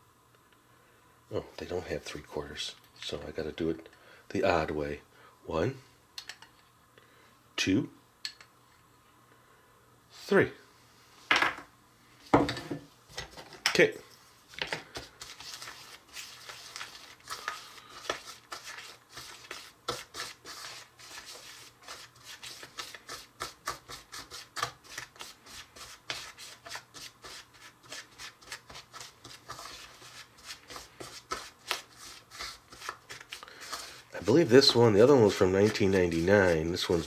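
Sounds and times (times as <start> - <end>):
fingertips rubbing crumbly mix: 15.0 - 37.0.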